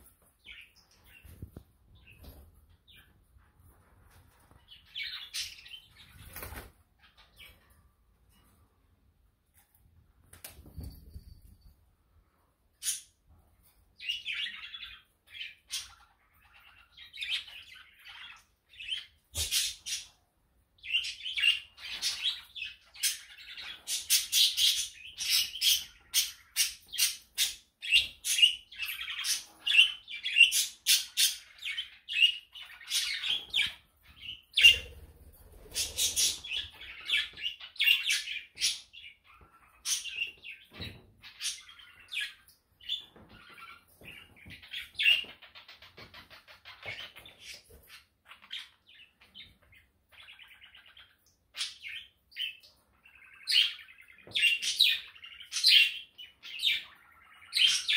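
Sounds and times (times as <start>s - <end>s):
budgerigars chirping: 20.9s - 57.9s.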